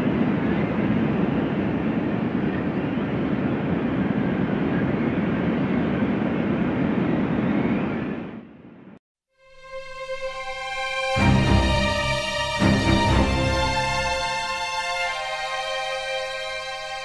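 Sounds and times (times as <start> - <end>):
rushing wind: 0.0 - 8.9.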